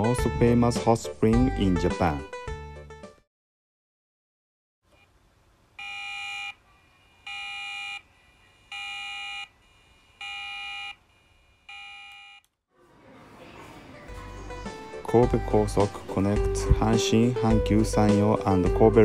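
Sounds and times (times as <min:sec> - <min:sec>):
electronic warning beeps: 0:08.6 - 0:12.4.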